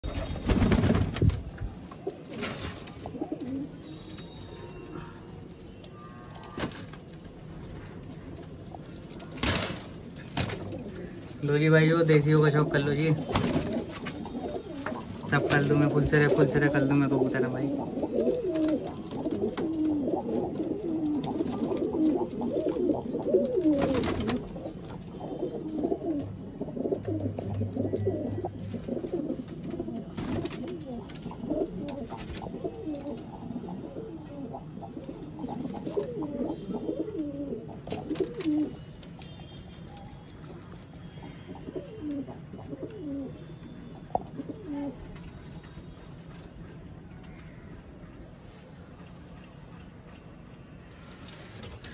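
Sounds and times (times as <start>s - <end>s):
pigeons cooing: 2.0s - 5.2s, 10.5s - 38.9s, 41.1s - 43.4s, 44.0s - 45.2s.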